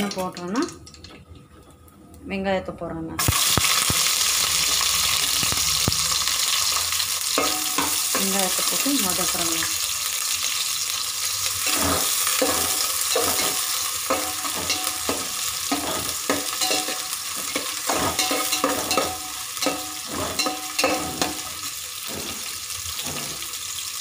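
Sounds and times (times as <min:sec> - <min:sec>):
onions sizzling in oil: 0:03.2 - 0:24.0
metal spoon scraping pot: 0:11.6 - 0:23.6.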